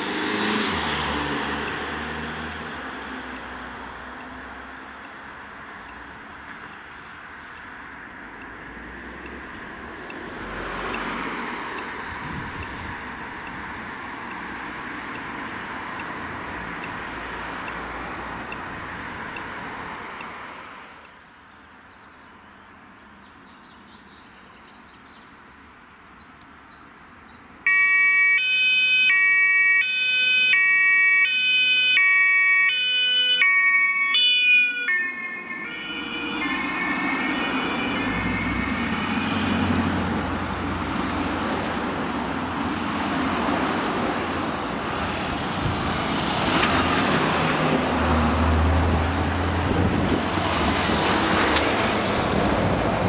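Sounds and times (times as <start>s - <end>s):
vehicle engines passing: 0.0s - 21.8s, 30.4s - 53.0s
road traffic passing: 0.0s - 53.0s
two-tone emergency siren: 27.7s - 40.0s.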